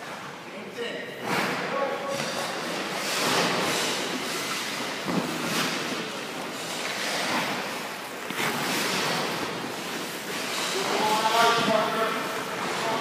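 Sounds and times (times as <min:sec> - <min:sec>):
skate blades scraping on ice: 0:01.3 - 0:13.0.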